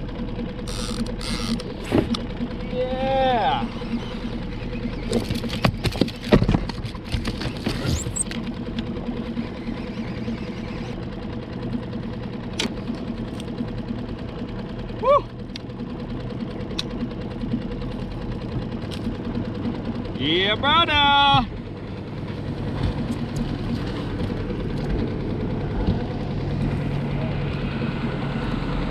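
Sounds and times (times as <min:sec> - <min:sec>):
outboard motor running: 0:00.0 - 0:28.9
knocks and clatter: 0:05.0 - 0:08.4.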